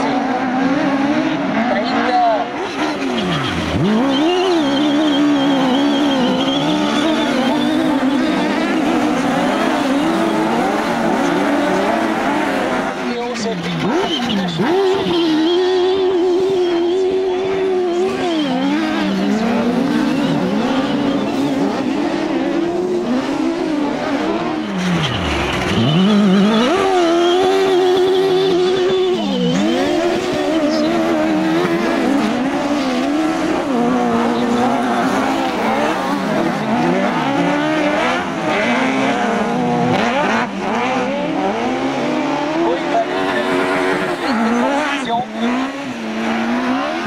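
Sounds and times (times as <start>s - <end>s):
racing buggy engines revving: 0.0s - 47.0s.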